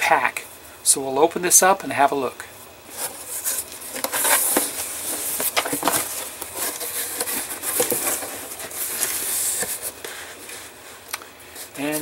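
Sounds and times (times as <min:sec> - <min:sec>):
plastic packaging rustling: 0:02.9 - 0:12.0.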